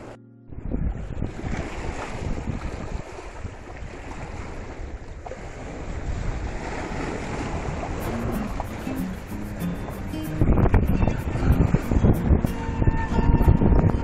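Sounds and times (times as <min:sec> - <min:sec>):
wind buffeting microphone: 0:00.5 - 0:14.0
small waves splashing over rocks: 0:01.4 - 0:08.0.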